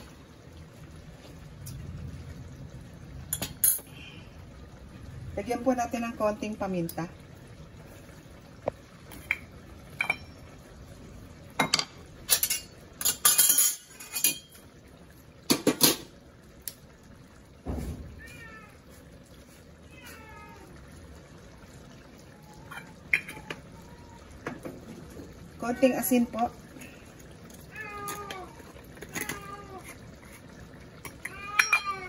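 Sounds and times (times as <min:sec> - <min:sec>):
utensils clinking against metal wok: 0:03.3 - 0:03.9, 0:09.2 - 0:10.4, 0:11.6 - 0:14.6, 0:31.0 - 0:32.0
cat meowing: 0:18.1 - 0:18.8, 0:19.8 - 0:20.8, 0:27.6 - 0:29.8, 0:31.2 - 0:32.0.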